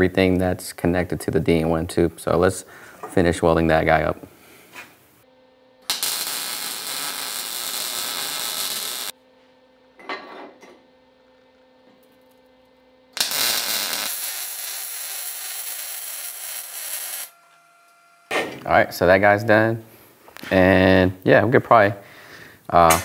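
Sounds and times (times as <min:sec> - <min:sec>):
welding arc: 0:05.8 - 0:09.2, 0:13.1 - 0:17.5.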